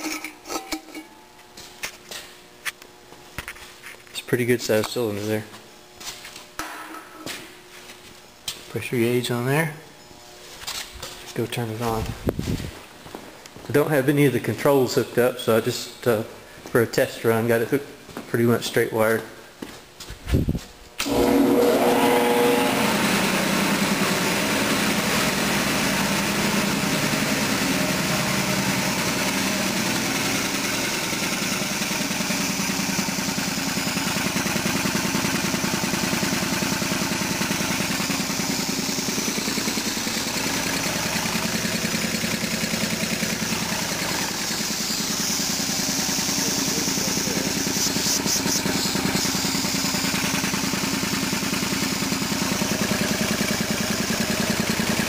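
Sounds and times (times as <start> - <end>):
air compressor pulsing: 20.3 - 55.0.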